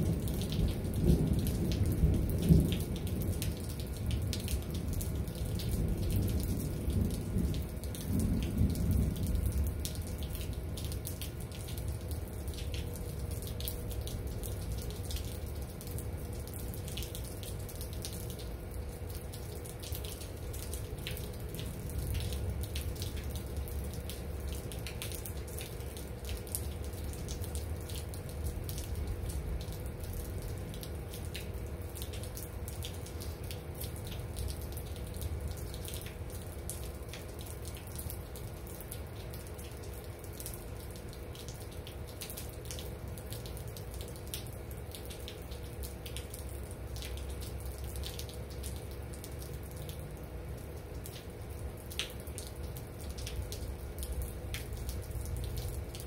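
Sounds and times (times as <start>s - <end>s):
steady rain: 0.0s - 56.0s
water drops dripping: 22.2s - 56.0s.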